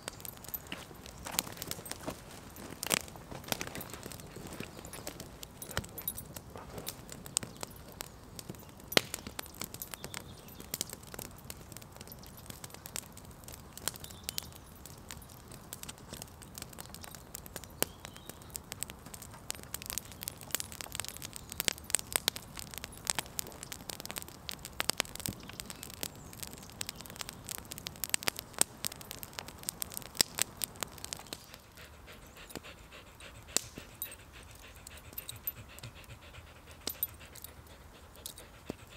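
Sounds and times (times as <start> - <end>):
campfire crackling: 0.0 - 38.9
sharp pops and snaps: 2.8 - 14.5, 15.1 - 31.8, 33.4 - 35.9.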